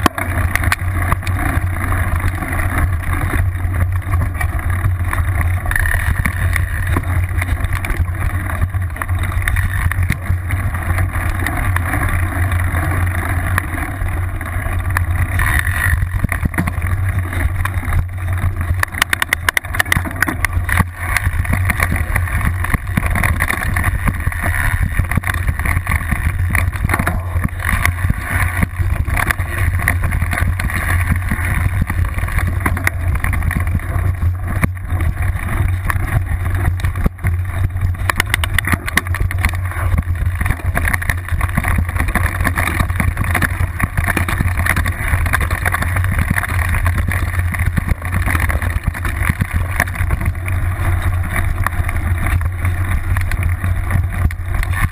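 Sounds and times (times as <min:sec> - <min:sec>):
bike knocking and rattling: 0:00.0 - 0:54.9
bike tyre rumble on dirt: 0:00.0 - 0:54.9
wind on microphone: 0:00.0 - 0:54.9.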